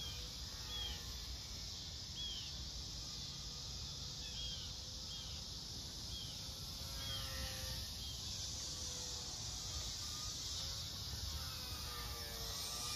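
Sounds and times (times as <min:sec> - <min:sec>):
electric model plane motor whine: 0:00.0 - 0:01.4, 0:06.1 - 0:12.9
insects buzzing: 0:00.0 - 0:12.9.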